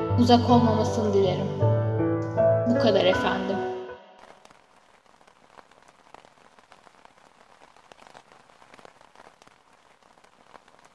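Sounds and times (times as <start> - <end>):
faint rain hiss: 2.8 - 10.9.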